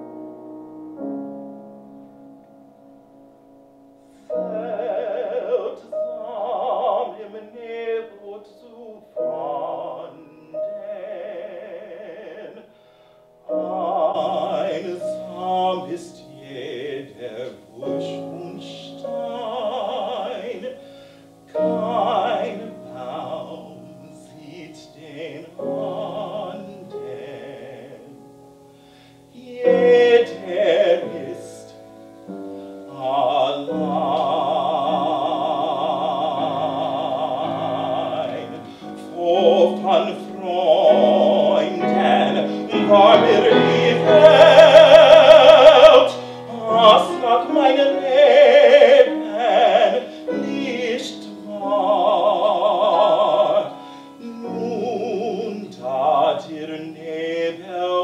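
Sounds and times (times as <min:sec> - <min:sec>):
piano accompaniment: 0:00.0 - 0:58.0
baritone operatic singing: 0:04.2 - 0:12.8, 0:13.4 - 0:28.4, 0:29.2 - 0:58.0.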